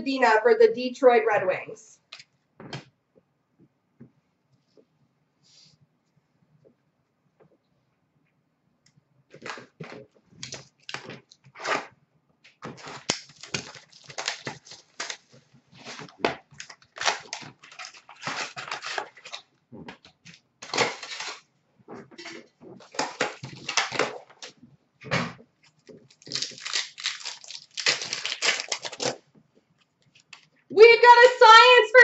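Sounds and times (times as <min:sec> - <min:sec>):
card pack wrappers tearing and crinkling: 0:09.3 - 0:11.9, 0:12.6 - 0:19.5, 0:20.3 - 0:21.4, 0:22.8 - 0:24.5, 0:26.0 - 0:29.2.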